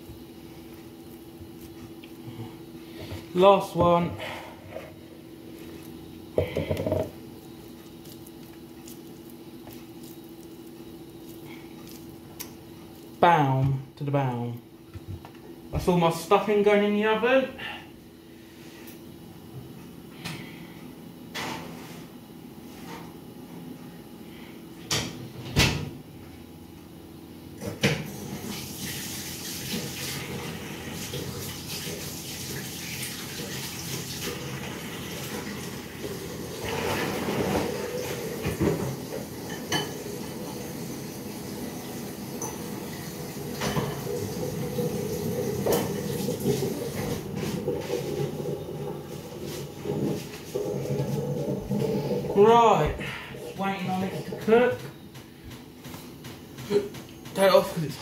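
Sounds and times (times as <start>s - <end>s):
hands squishing stuffing mix: 7.4s - 13.2s.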